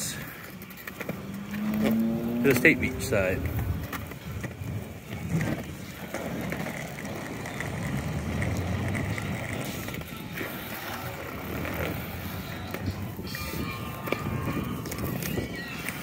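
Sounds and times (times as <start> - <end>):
skateboard wheels rolling on asphalt: 0.0 - 16.0.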